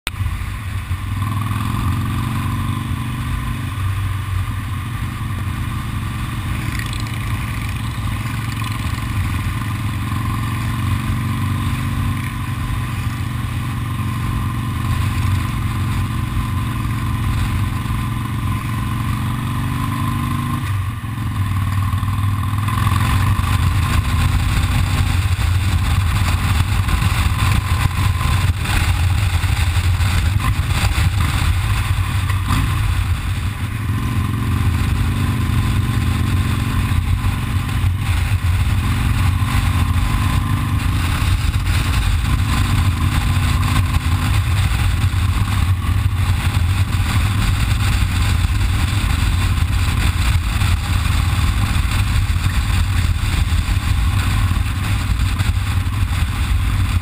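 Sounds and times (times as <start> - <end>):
motorcycle engine accelerating: 0.1 - 57.0
rushing noise: 22.3 - 57.0.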